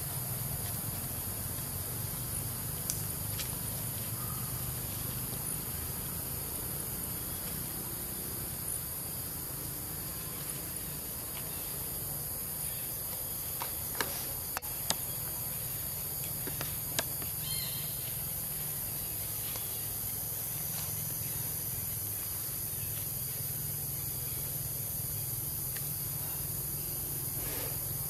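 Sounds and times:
high-pitched insect drone: 17.0 - 28.0.

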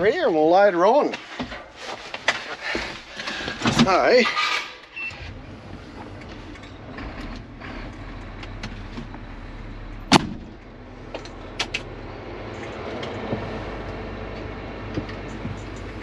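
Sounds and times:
diesel engine running: 5.1 - 16.0.

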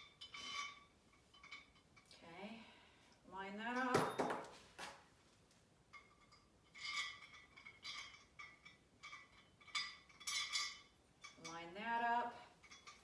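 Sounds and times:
metallic clinking and scraping: 0.0 - 2.2, 5.9 - 13.0.

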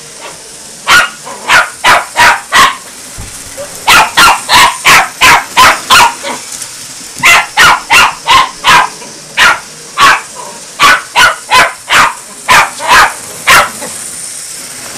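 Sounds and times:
small dog barking: 0.8 - 2.8, 3.6 - 6.4, 7.2 - 13.9.

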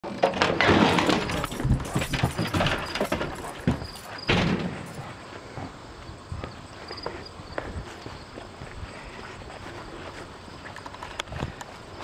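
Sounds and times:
door clattering open: 0.1 - 5.0.

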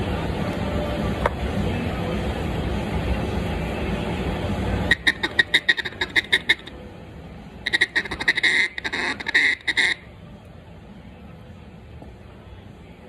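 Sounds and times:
steady rushing noise: 0.0 - 13.0
duck call quacks: 4.9 - 6.7, 7.7 - 10.0.

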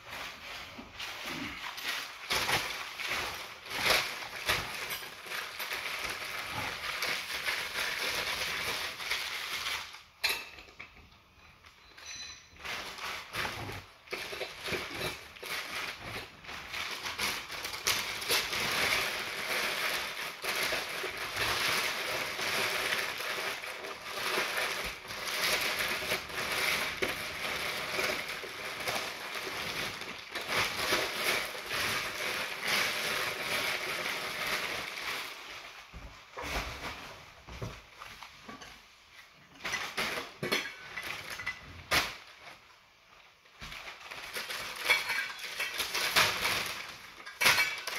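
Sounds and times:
paper crinkling: 0.0 - 10.1, 12.6 - 39.1
silver and glass clinking: 10.2 - 12.7.

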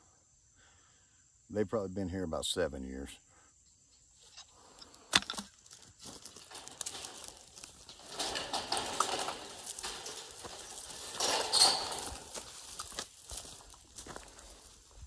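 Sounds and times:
wire mesh rattling and scraping: 5.2 - 15.0.

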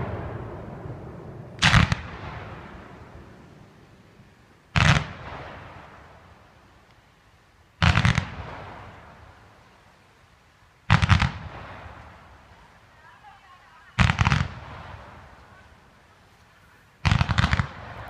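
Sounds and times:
firework bangs with echo: 0.0 - 3.4, 17.0 - 18.0.

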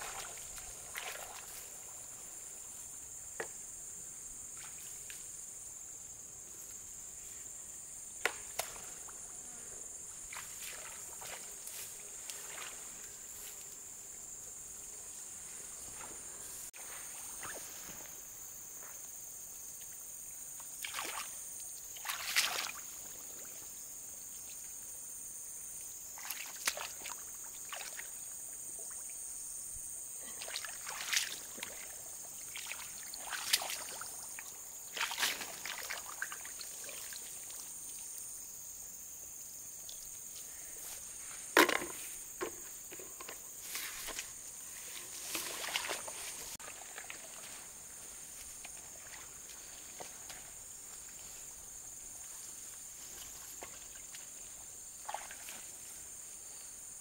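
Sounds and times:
muddy water splashing: 0.0 - 2.2, 10.2 - 13.0, 20.6 - 23.5, 26.2 - 28.2, 30.3 - 37.7, 45.0 - 51.2, 53.1 - 55.9
high-pitched insect chorus: 0.0 - 57.0.

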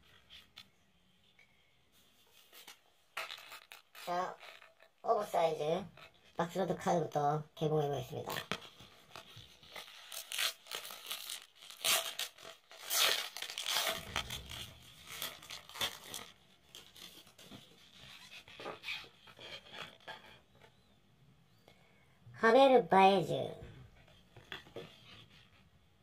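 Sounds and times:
paper wrapper tearing and rustling: 2.4 - 5.0, 8.3 - 20.3.

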